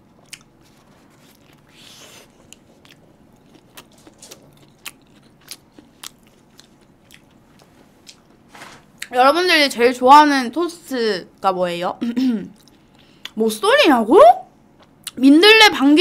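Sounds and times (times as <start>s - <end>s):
chewing toasted sandwich: 0.1s - 8.5s.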